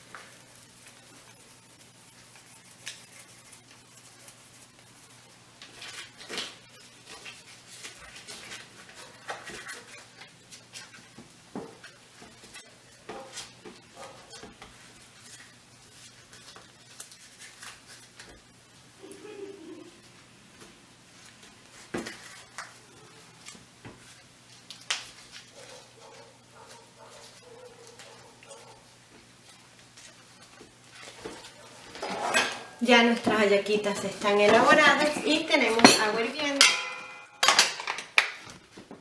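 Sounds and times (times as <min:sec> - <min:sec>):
corn husk rustling and crackling: 0:00.0 - 0:20.1.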